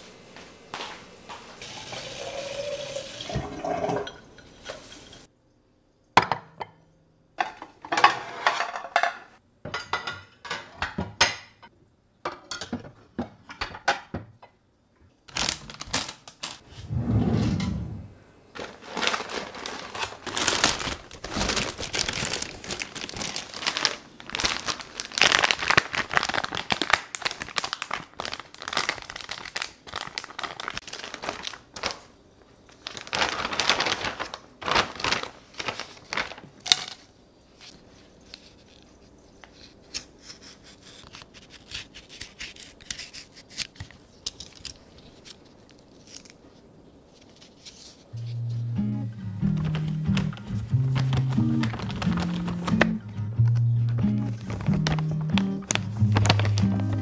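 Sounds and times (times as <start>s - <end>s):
water rushing from tap: 1.6s - 4.2s
plastic packaging crinkling: 15.3s - 16.6s, 18.5s - 48.3s, 49.5s - 57.0s.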